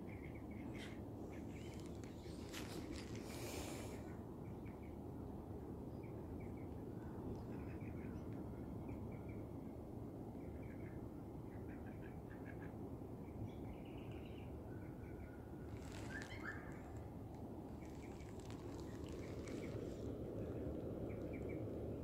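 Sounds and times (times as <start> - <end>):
birds chirping: 0.1 - 4.1, 17.7 - 21.6
low background rumble: 13.2 - 22.0.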